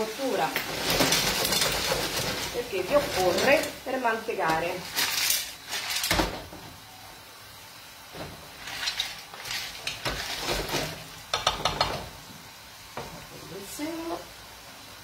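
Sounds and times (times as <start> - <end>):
clams clattering in a pan: 0.4 - 3.8, 4.4 - 6.4, 8.5 - 12.2
pan knocking on stove grate: 11.3 - 12.2.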